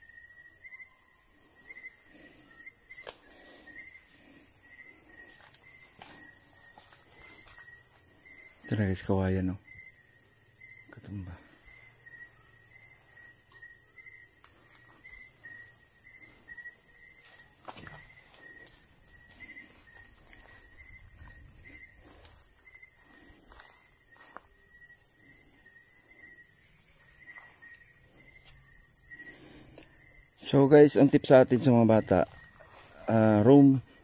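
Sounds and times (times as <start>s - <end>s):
crickets trilling: 0.0s - 34.0s
low insect chirp: 0.0s - 34.0s
footsteps through grass: 5.2s - 7.8s, 17.0s - 24.6s.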